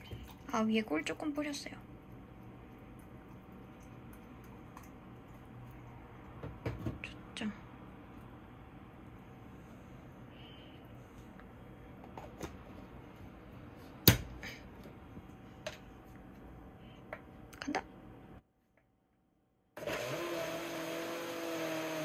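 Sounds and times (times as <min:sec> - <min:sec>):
countertop blender running: 0:19.8 - 0:22.0.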